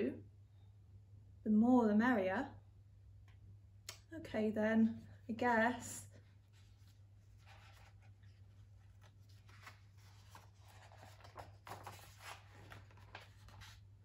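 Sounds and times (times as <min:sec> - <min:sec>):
paper pages rustling: 0:06.2 - 0:14.0.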